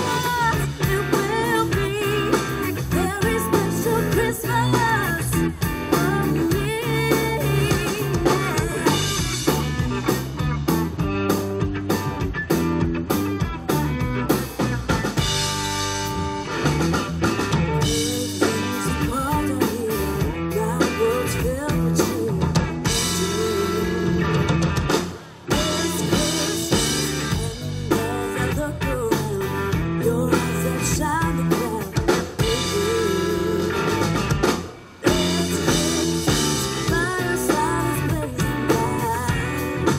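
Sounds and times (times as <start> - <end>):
woman singing into microphone: 0.0 - 9.2, 17.9 - 24.1, 25.5 - 34.0, 35.0 - 39.9
live rock band: 0.0 - 39.9.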